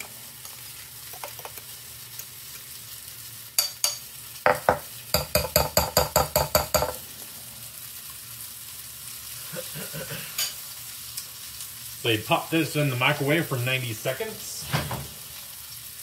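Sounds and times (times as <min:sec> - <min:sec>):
sausages sizzling in frying pan: 0:00.0 - 0:16.0
fork clinking against ceramic bowl: 0:03.6 - 0:04.0.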